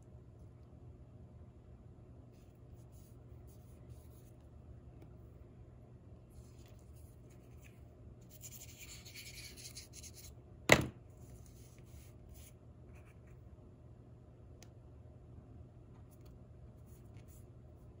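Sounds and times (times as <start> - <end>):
paper scratching: 6.4 - 10.3
glue pen rubbing on paper: 8.3 - 10.3.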